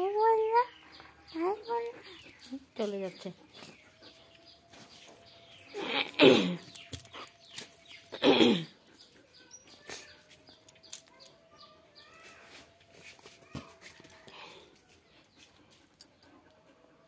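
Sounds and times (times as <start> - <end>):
dog whining: 5.6 - 7.3.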